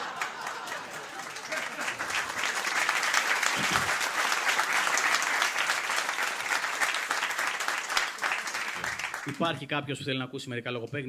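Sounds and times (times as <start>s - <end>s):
audience applauding: 0.0s - 9.6s
voice from the crowd: 3.5s - 4.0s.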